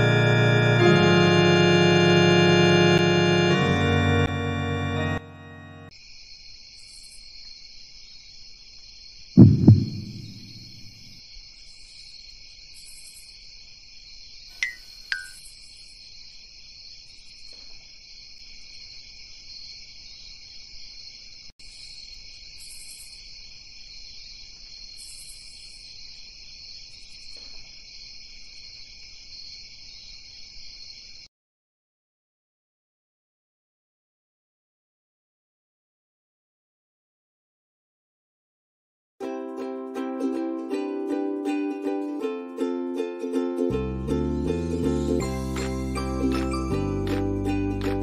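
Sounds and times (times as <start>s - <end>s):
crickets chirping: 5.9s - 31.3s
heavy low thuds: 9.4s - 10.9s
short sharp noises: 9.4s - 11.0s.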